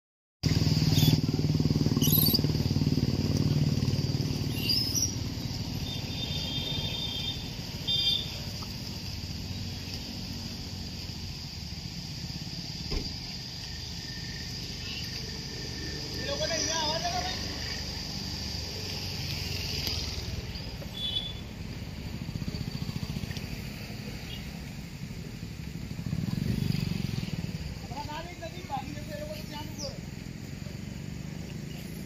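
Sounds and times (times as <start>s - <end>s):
insects droning: 0.5s - 32.0s
bird chirps: 2.0s - 2.5s, 4.4s - 8.3s.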